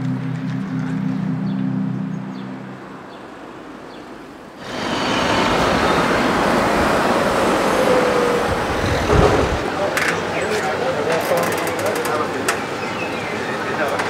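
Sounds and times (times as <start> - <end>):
passing vehicles rushing: 0.0 - 11.2.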